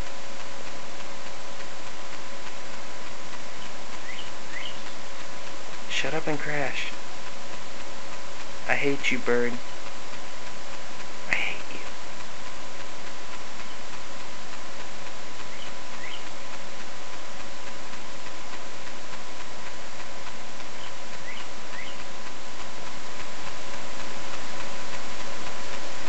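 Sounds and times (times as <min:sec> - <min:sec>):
camcorder recording hiss: 0:00.0 - 0:26.0
faint bird chirps: 0:03.5 - 0:05.0, 0:13.6 - 0:13.9, 0:15.5 - 0:16.4, 0:20.7 - 0:22.1.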